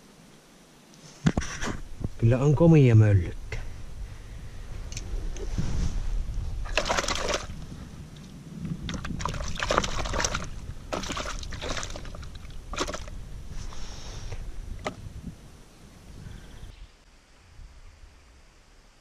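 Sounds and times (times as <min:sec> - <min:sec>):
water splashing in a bucket: 0:06.6 - 0:07.6, 0:08.8 - 0:13.1.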